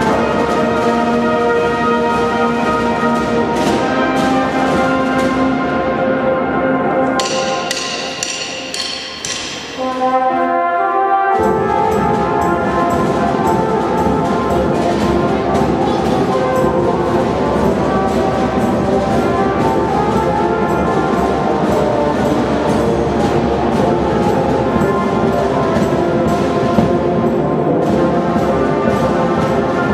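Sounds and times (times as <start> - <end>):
brass instruments playing melody: 0.0 - 29.9
marching drums beat: 7.2 - 10.2, 11.4 - 29.9.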